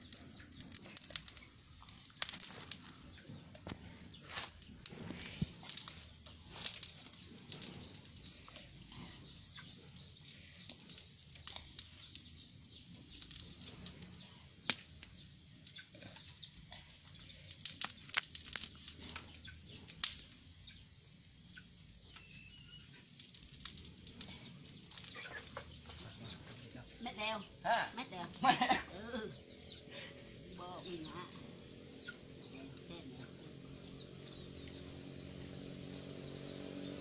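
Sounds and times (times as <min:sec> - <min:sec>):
wood fire crackling: 0:00.0 - 0:37.0
high-pitched insect drone: 0:24.3 - 0:37.0.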